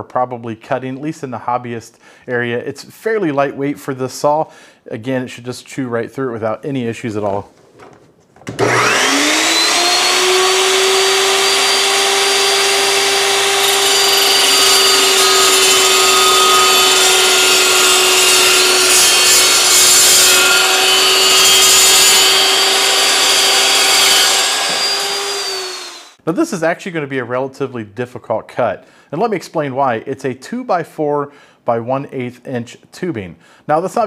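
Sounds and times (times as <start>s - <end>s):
chop saw cutting steel: 8.5s - 26.2s.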